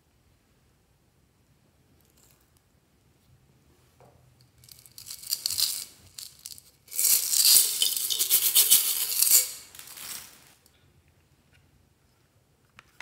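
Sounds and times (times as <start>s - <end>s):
beads rattling from bottle: 4.6s - 10.6s.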